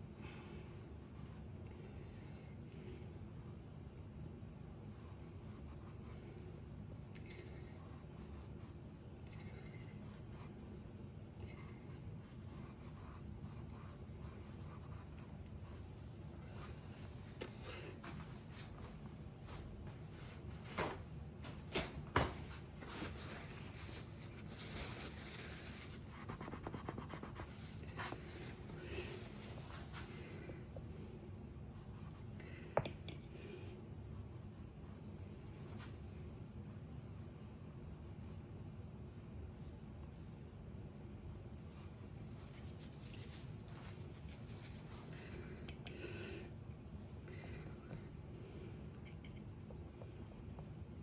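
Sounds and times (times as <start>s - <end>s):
low room hum: 0.0s - 51.0s
paintbrush scratching on canvas: 10.0s - 17.1s, 22.8s - 30.2s
paintbrush strokes on canvas: 22.6s - 32.3s, 34.0s - 45.3s.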